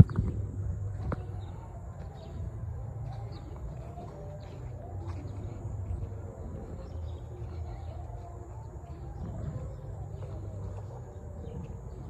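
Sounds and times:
birds calling faintly: 0:00.0 - 0:12.0
steady low rumble: 0:00.0 - 0:12.0.

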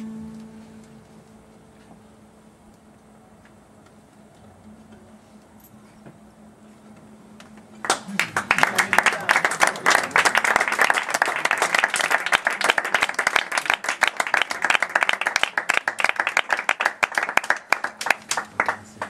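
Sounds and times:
audience applauding: 0:07.8 - 0:19.0.

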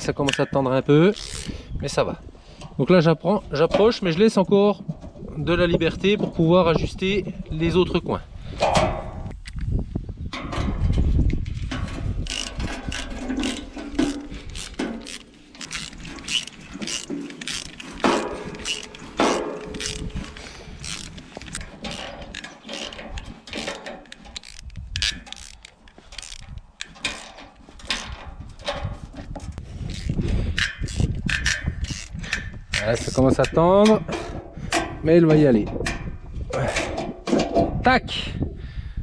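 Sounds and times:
ratchet wrench clicking: 0:01.1 - 0:01.5, 0:11.6 - 0:28.1, 0:29.8 - 0:34.4.

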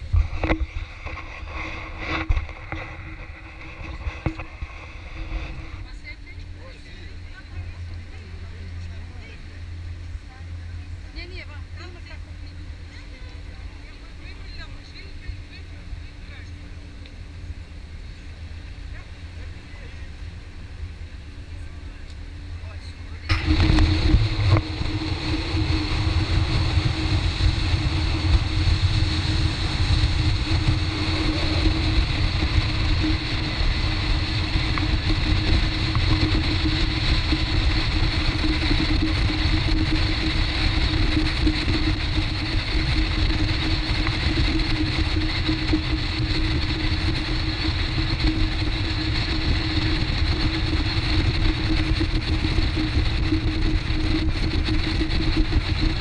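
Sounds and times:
motorboat engines running: 0:00.0 - 0:56.0
water rushing past hull: 0:23.3 - 0:56.0.

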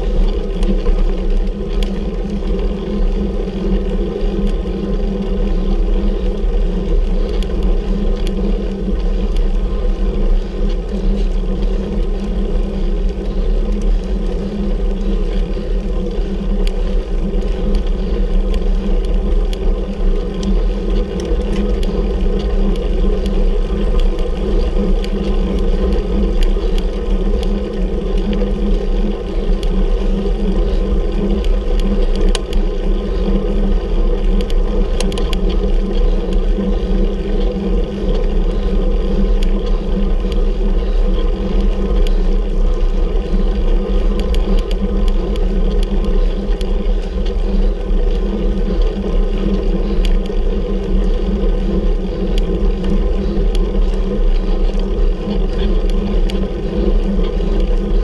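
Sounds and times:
bicycle rumble and hum: 0:00.0 - 0:58.0
faint ticks: 0:00.0 - 0:58.0.

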